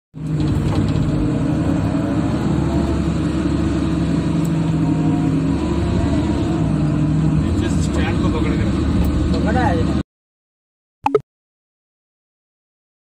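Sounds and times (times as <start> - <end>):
diesel engine running under load: 0.2 - 10.0.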